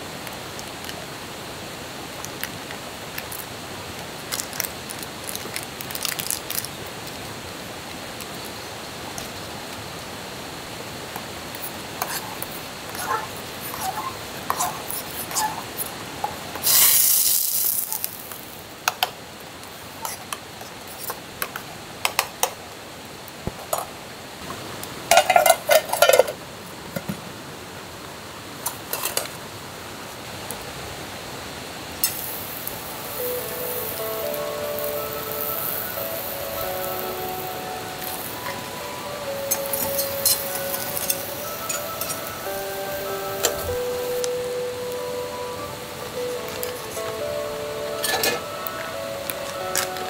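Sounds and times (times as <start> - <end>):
loud hiss: 0.0 - 18.9, 30.2 - 49.7
metal cookware clinking and scraping: 25.1 - 26.4.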